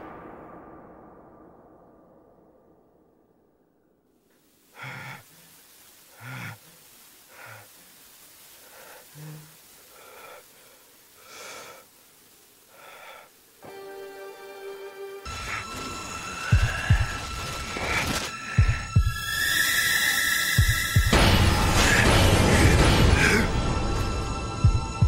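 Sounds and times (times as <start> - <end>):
person breathing heavily: 4.7 - 12.0, 12.7 - 13.5, 15.3 - 19.2, 20.6 - 24.2.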